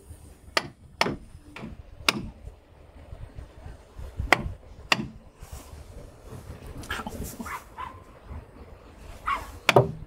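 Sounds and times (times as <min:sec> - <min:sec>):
hammer striking caulking iron: 0:00.6 - 0:02.4, 0:04.3 - 0:05.2, 0:09.7 - 0:10.0.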